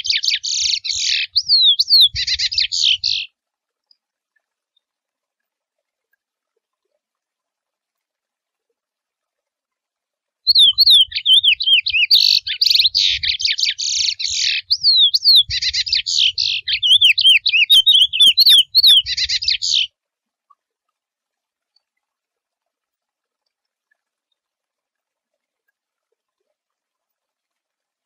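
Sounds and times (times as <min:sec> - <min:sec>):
finch singing whistles and trills: 0:00.0 - 0:03.3, 0:10.5 - 0:19.9.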